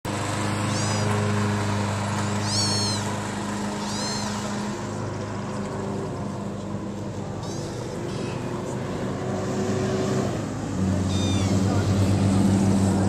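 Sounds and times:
low engine-like hum: 0.1 - 13.0
kitten meowing: 0.7 - 1.1, 2.4 - 3.1, 3.8 - 4.5, 11.0 - 11.7.

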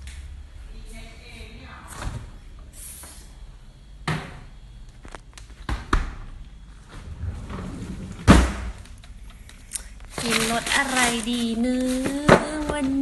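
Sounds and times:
knocks and thuds at refrigerator: 4.0 - 4.4, 5.6 - 6.3, 8.2 - 8.8.

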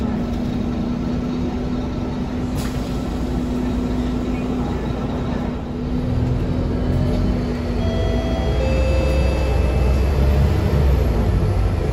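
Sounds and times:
bus engine and road rumble: 0.0 - 11.9.

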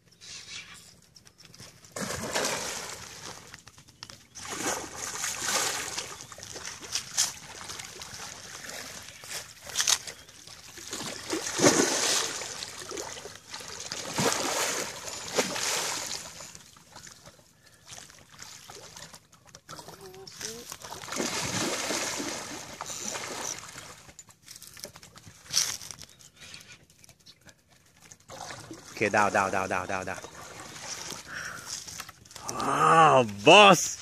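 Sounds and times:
fish thrashing and splashing water: 1.9 - 19.6, 20.7 - 24.2, 27.9 - 29.2, 30.2 - 31.3.

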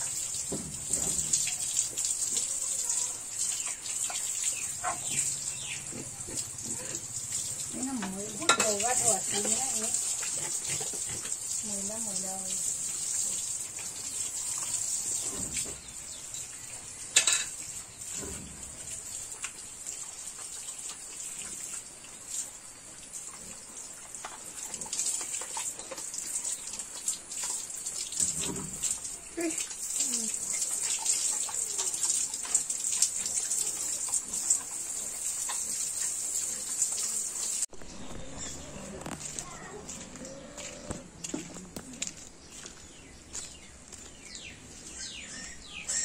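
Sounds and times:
hose spraying water on concrete: 0.0 - 37.7
splashes and knocks: 0.4 - 2.5, 5.9 - 11.5, 24.2 - 29.7.

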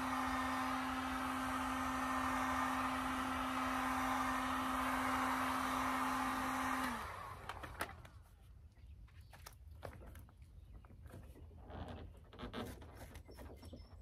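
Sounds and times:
heat gun fan humming: 0.0 - 8.2.

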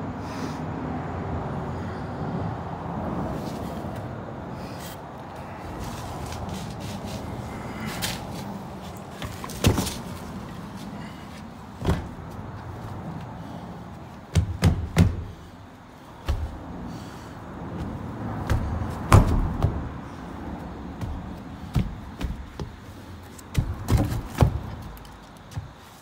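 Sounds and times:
footsteps on dirt and wooden boards: 4.8 - 26.0
steady rushing background: 11.7 - 26.0.

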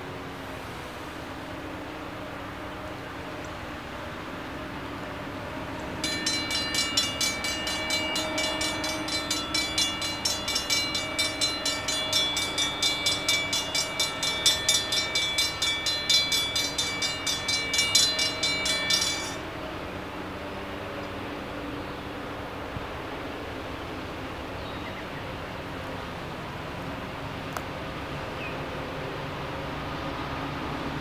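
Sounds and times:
railroad crossing bell ringing: 5.5 - 20.6.

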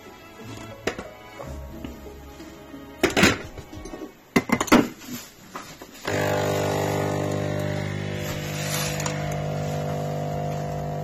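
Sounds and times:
coffee machine pump humming: 6.1 - 11.0.

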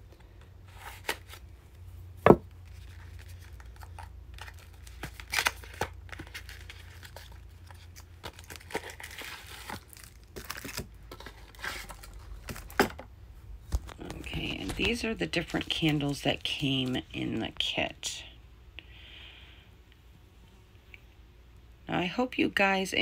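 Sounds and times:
packaging torn and crinkled: 2.6 - 12.9.

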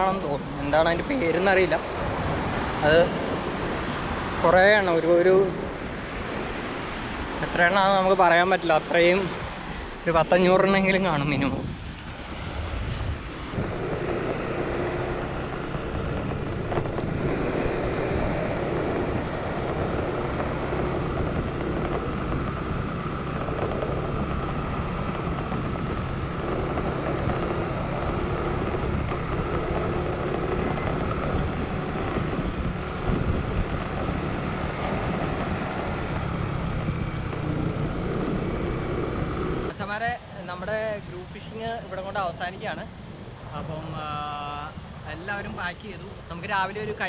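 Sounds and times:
scooter engine running: 13.5 - 39.7.

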